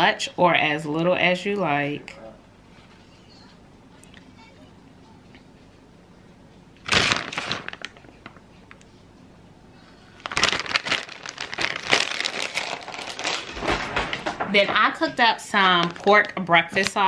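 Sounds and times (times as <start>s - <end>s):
plastic packaging crinkling: 6.8s - 8.8s, 10.1s - 17.0s.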